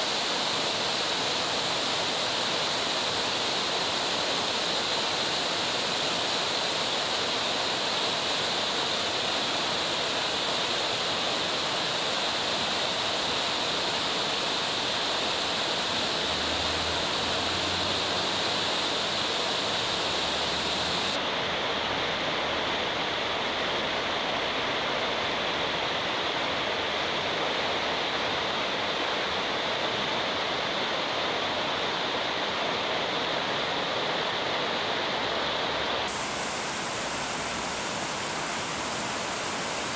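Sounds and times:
river rushing over boulders: 0.0 - 39.9.

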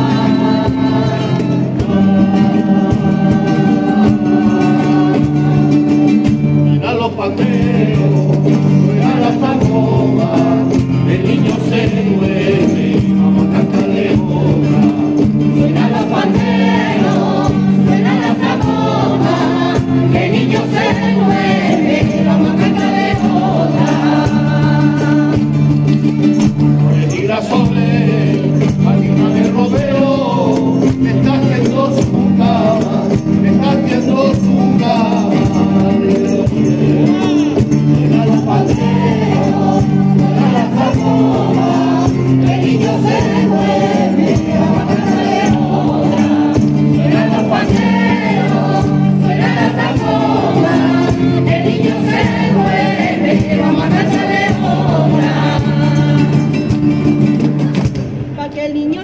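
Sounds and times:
group singing a carol: 0.0 - 57.6
strummed classical guitars: 0.0 - 59.0.

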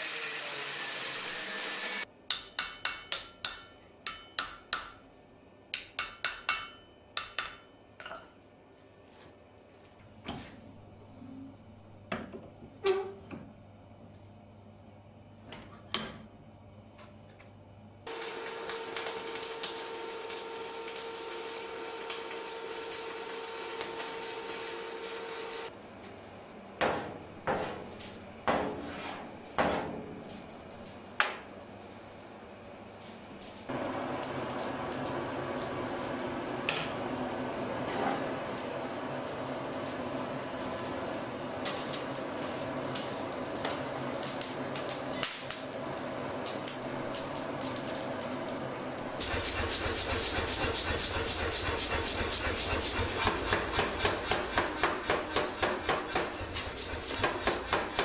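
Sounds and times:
hammer striking steel punch: 2.3 - 5.0, 5.7 - 7.7
humming mechanical noise: 8.0 - 58.0.

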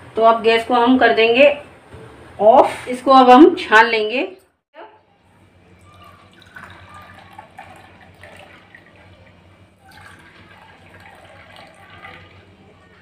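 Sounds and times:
tea pouring into a ceramic cup: 5.8 - 13.0.

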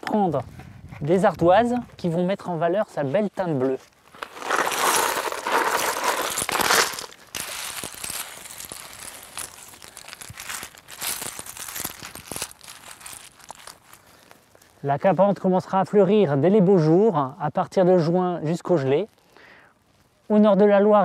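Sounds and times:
slate chips clattering from bucket: 4.2 - 13.6
slate pieces clinking and scraping: 4.2 - 13.9.

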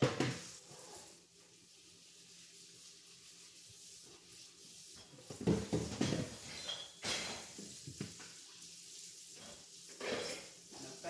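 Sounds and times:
fries sizzling in a skillet: 0.0 - 11.0
dishes and pans clattering: 5.0 - 8.3, 9.4 - 10.8.

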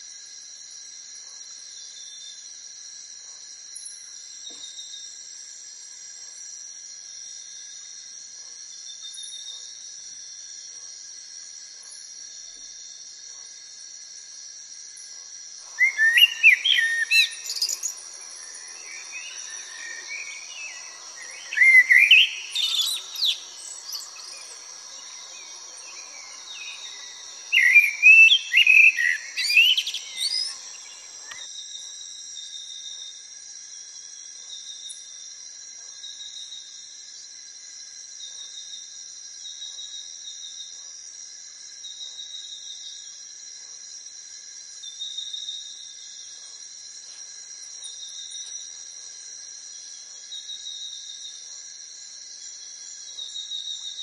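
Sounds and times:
high insect hiss: 0.0 - 54.0
pulsing insect trill: 0.0 - 54.0
blackbird singing: 15.7 - 31.4.

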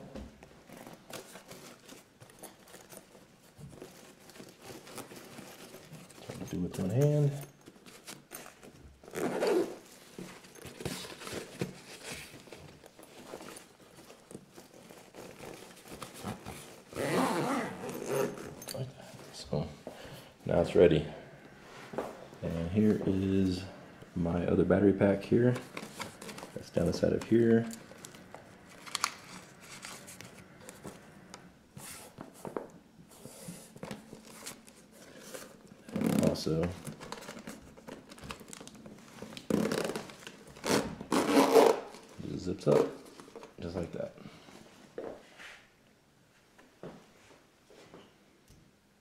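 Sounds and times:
fabric bag rustling: 0.6 - 19.4, 25.4 - 31.2
zipper rasping: 8.4 - 9.9, 14.9 - 18.8, 39.5 - 42.0.

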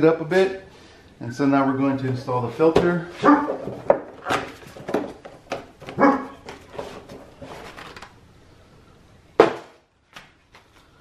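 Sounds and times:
dog barking: 3.2 - 3.6, 6.0 - 6.4.

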